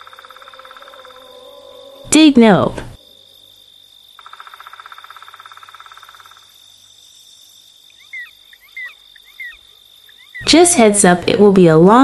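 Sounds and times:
insects high-pitched trill: 0.0s - 11.8s
rapid pulsing insect trill: 0.0s - 12.0s.

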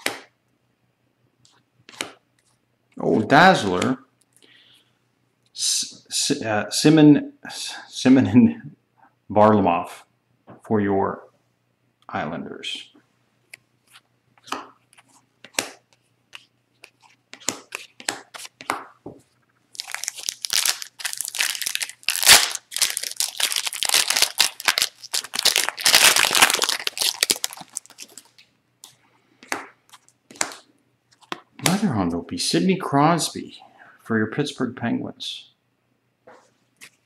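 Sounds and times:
trading cards clicking and tapping: 14.4s - 19.0s
foil wrapper crinkling and tearing: 19.7s - 28.4s.

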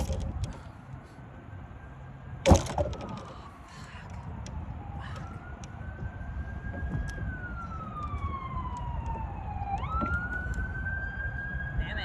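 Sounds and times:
siren wailing: 0.0s - 12.0s.

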